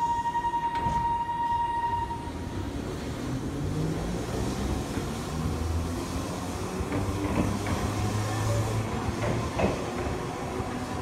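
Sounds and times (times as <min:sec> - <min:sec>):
steady high tone: 0:00.0 - 0:02.4
streetcar rumbling on rails: 0:00.0 - 0:11.0.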